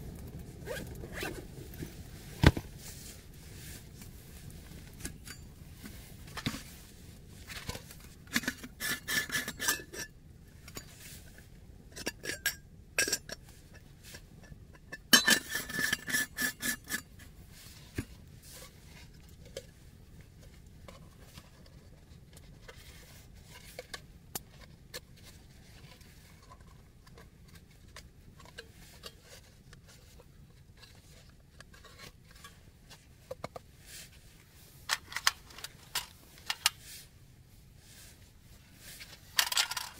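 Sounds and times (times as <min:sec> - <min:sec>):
metal camp gear clinking: 0:14.8 - 0:17.0, 0:39.3 - 0:39.9.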